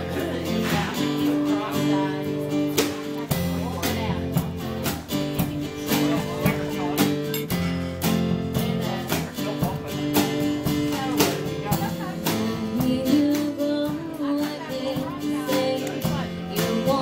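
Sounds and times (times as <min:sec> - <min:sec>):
woman singing: 0:00.0 - 0:04.6, 0:08.6 - 0:17.0
acoustic guitar strumming: 0:00.0 - 0:17.0
drum kit beat: 0:00.0 - 0:17.0.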